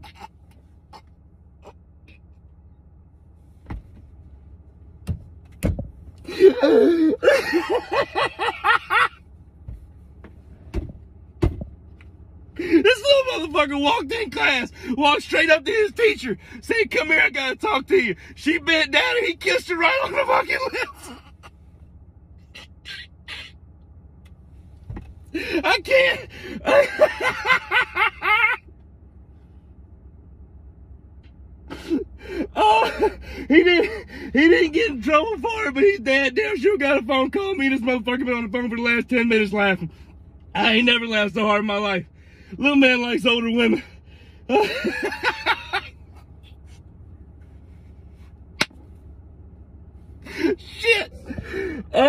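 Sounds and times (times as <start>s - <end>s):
low steady hum: 0.0s - 52.0s
man laughing: 6.3s - 9.2s, 19.8s - 21.6s, 25.4s - 28.6s, 31.7s - 35.0s, 44.5s - 46.4s.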